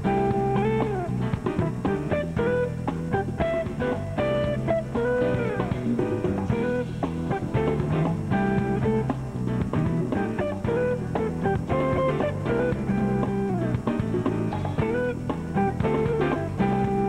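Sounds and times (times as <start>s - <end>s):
smooth jazz guitar music: 0.0s - 17.0s.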